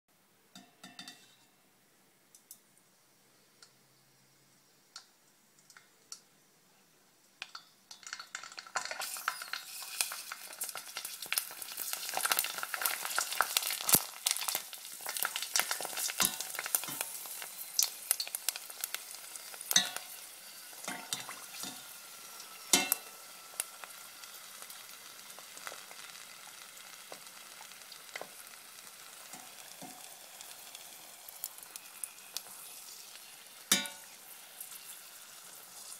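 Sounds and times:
pork skin sizzling in hot oil: 7.4 - 35.9.

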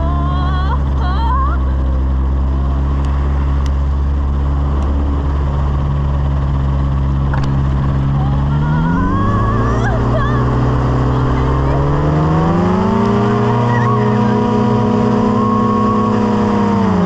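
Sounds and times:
light aircraft engine running: 0.0 - 17.0.

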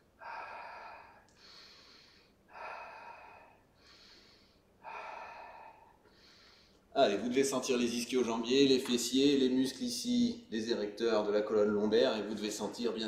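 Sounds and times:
man breathing deeply: 0.0 - 6.9.

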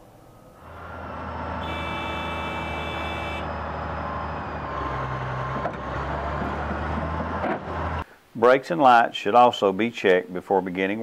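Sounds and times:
high whine: 0.1 - 4.6
diesel engine running: 0.3 - 8.0.

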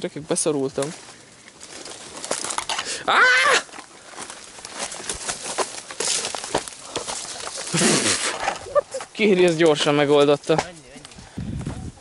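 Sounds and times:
leaves rustling: 0.0 - 12.0
twigs cracking: 0.6 - 11.2
man's strained cry: 3.0 - 3.7.

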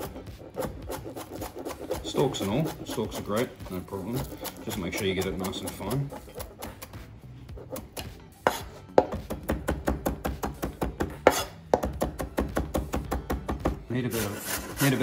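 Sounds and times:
knife chopping on cutting board: 0.0 - 7.0, 7.6 - 15.0.

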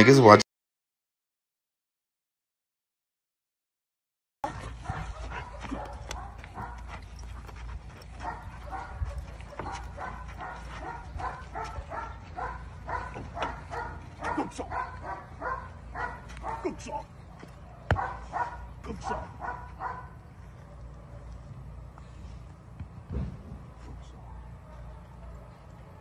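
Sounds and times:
dog barking and yipping: 4.4 - 21.4.

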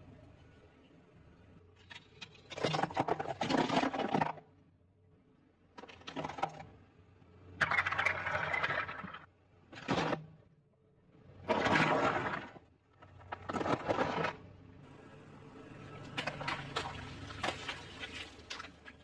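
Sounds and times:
objects crunching under car tyre: 11.5 - 14.4, 16.1 - 19.0.

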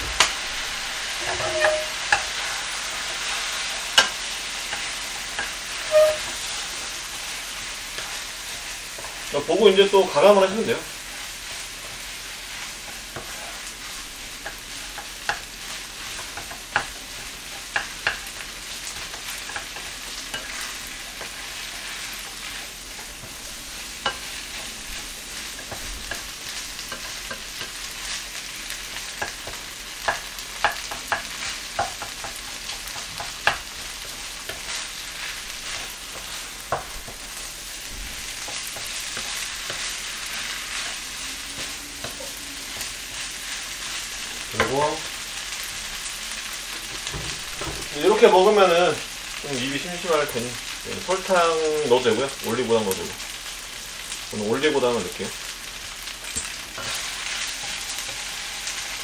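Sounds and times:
wooden spatula scraping a pan: 0.0 - 45.9, 56.3 - 59.0
fried rice sizzling in a pan: 0.0 - 59.0
spatula knocking against pan: 29.2 - 33.6.

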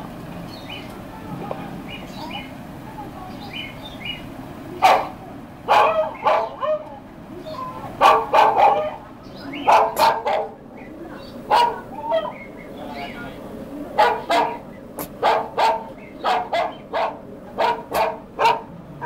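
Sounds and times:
dog barking: 4.8 - 6.9, 8.0 - 10.6, 11.5 - 12.4, 14.0 - 18.7.

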